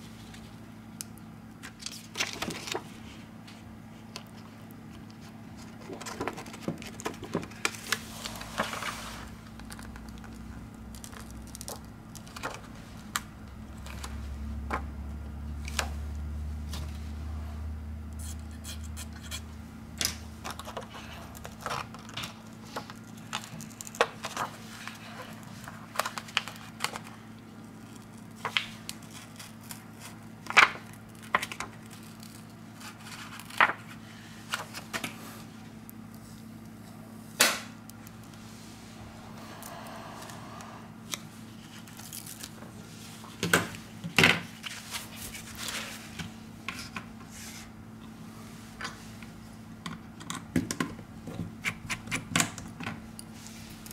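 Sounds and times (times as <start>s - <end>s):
plastic film crinkling: 5.1s - 14.2s
low hum: 35.7s - 43.2s.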